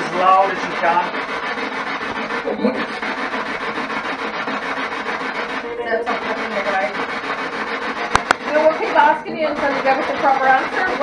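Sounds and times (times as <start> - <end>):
chopped radio static: 8.0 - 11.0.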